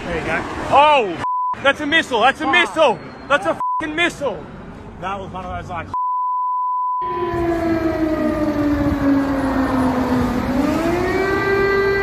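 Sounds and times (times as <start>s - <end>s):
censor bleep: 1.2s - 1.6s, 3.6s - 3.9s, 6.0s - 7.1s
air-raid siren wailing: 7.0s - 12.0s.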